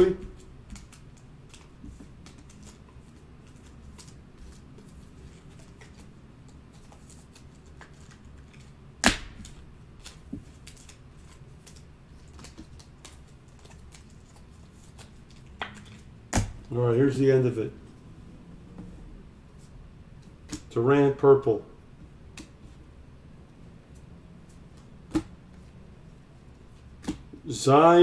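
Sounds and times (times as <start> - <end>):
cards clicking and rustling: 0.4 - 16.5.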